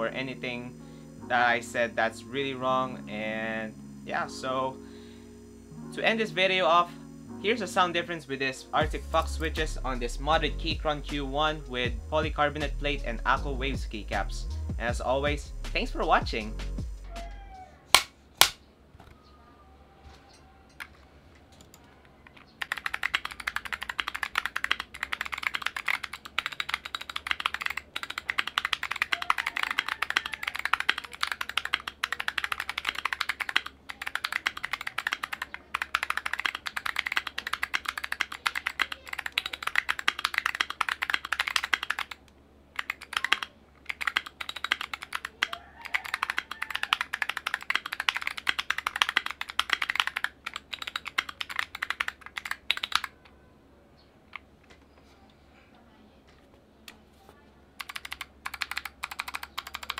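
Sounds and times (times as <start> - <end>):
typing on mechanical keyboard: 21.6 - 53.4, 57.8 - 59.9.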